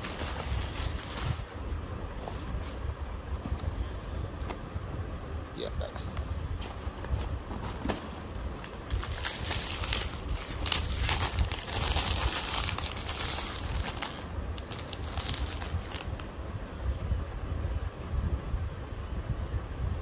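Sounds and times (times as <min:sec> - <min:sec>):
packaging tearing and crinkling: 0:00.0 - 0:01.5, 0:06.6 - 0:16.3
steady low rumble: 0:00.0 - 0:20.0.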